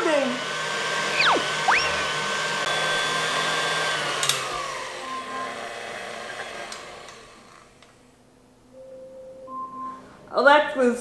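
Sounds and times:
stand mixer motor whining: 0.1 - 7.8.

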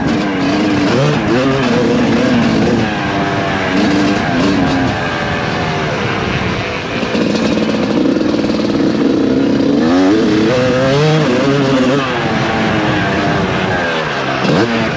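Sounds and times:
motocross engine revving: 0.0 - 14.9.

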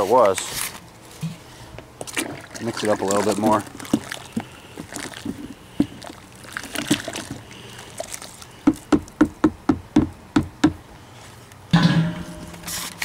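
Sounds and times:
paddle sloshing thick mash: 2.0 - 8.9.

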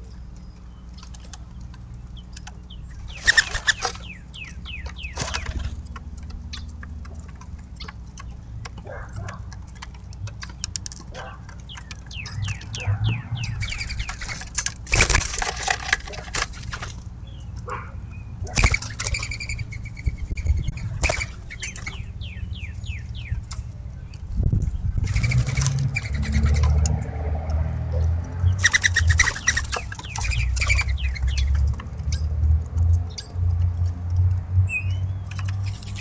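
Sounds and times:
dove wings flapping: 3.1 - 4.0, 5.1 - 5.8, 13.8 - 16.9, 18.5 - 19.3.

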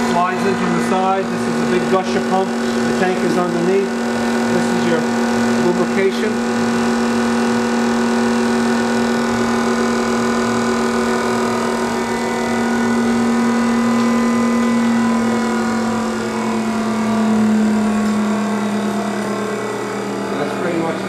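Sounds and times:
grinder motor hum: 0.0 - 21.0.

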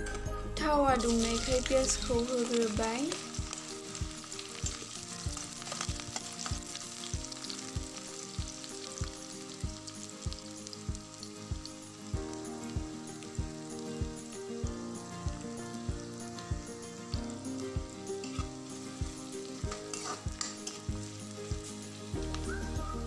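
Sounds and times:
background music with low beat: 0.0 - 1.8, 19.0 - 23.0
onions sizzling in oil: 0.9 - 23.0.

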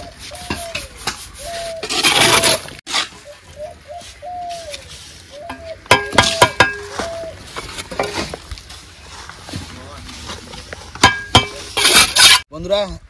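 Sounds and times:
bird calling: 0.0 - 7.7
trowel scraping wet mortar: 0.2 - 3.2, 11.5 - 12.4.

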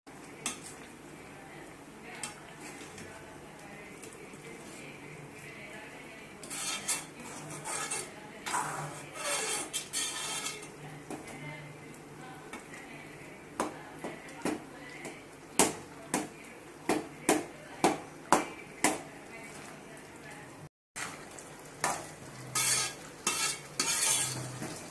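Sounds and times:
ladle stirring and scraping pot: 2.2 - 3.2, 6.4 - 11.4, 21.8 - 24.9.

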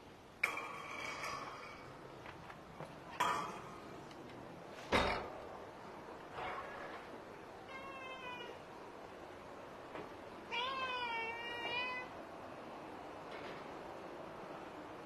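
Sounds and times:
cat meowing: 7.6 - 8.7, 10.5 - 12.1.

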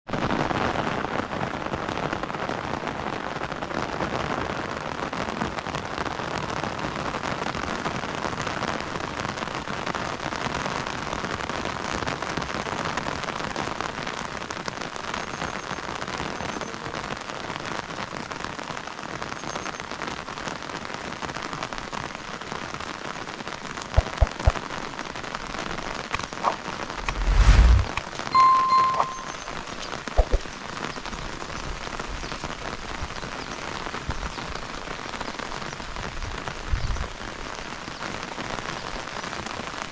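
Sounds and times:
steady rain: 0.1 - 28.0, 29.6 - 39.9
sharp knocks: 24.0 - 24.6.

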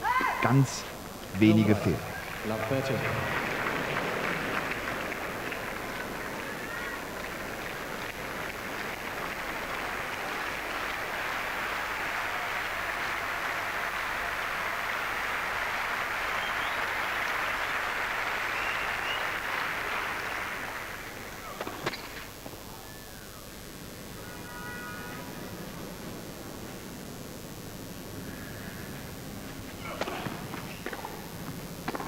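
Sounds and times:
crowd applauding: 1.4 - 21.6.

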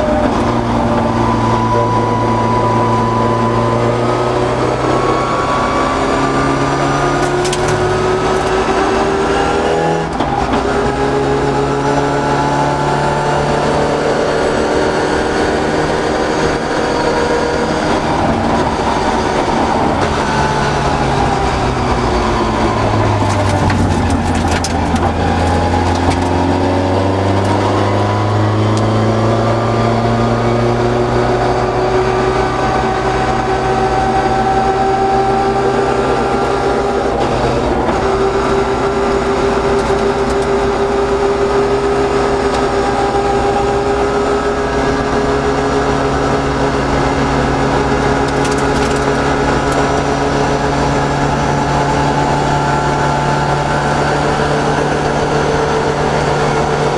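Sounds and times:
rally car engine revving: 0.0 - 56.9
sharp clicking and rattling: 7.2 - 8.6, 23.2 - 26.4, 47.9 - 50.0.

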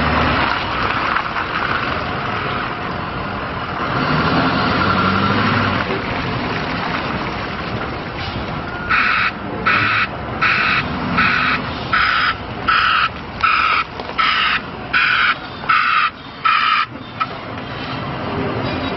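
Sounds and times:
truck reversing alarm beeping: 8.3 - 17.4.

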